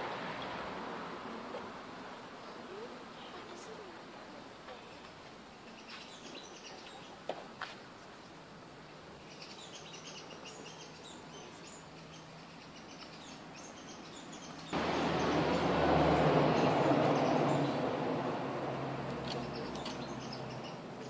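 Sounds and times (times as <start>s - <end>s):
small birds chirping: 1.6s - 18.0s, 19.0s - 21.0s
loud rushing noise: 14.8s - 19.1s.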